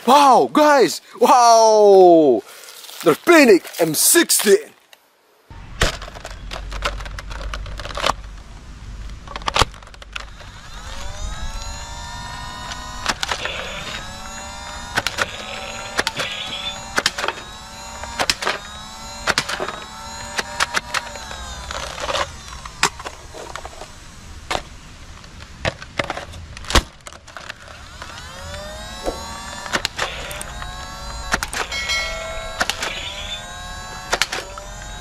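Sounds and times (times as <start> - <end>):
blaster flywheels whining: 10.2 - 24.2, 27.4 - 35.0.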